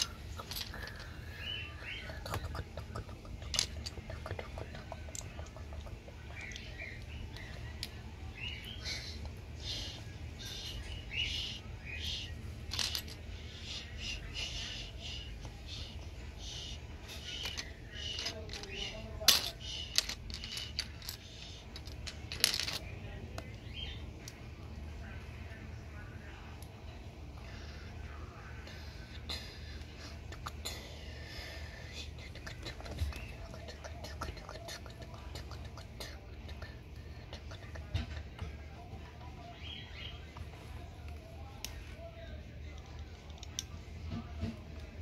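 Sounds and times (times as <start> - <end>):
steady low hum: 0.0 - 45.0
plastic pieces clicking and clattering: 12.7 - 13.2, 17.4 - 22.8.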